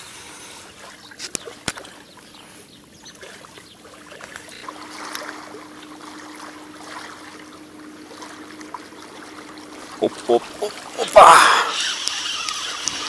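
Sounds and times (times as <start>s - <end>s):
water lapping: 0.0s - 13.0s
faint steady hum: 3.8s - 13.0s
sharp clicks: 11.7s - 13.0s.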